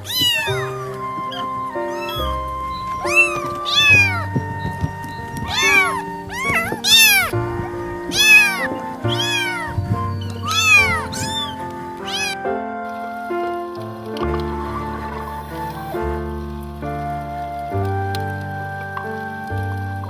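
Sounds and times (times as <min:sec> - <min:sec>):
kittens meowing: 0:00.0 - 0:12.4
background music with held notes: 0:00.0 - 0:20.0.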